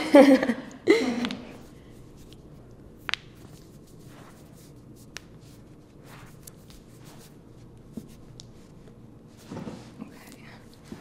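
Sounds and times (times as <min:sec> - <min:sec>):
hands rustling on skin: 0:01.6 - 0:10.0.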